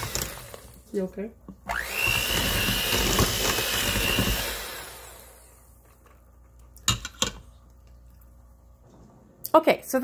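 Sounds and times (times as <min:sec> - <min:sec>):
electric hand mixer running: 0:00.0 - 0:00.8, 0:01.6 - 0:05.7.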